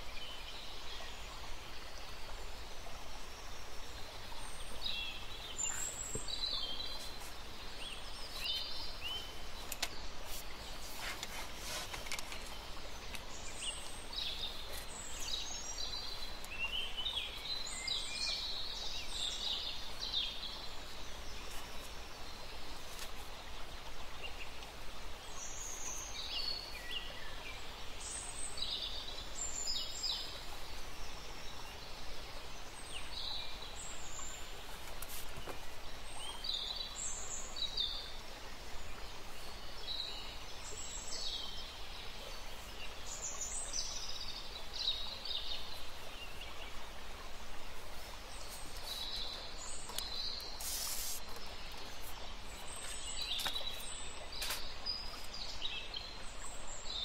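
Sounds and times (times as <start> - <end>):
small birds chirping: 0.0 - 57.0
steady background hiss: 0.0 - 57.0.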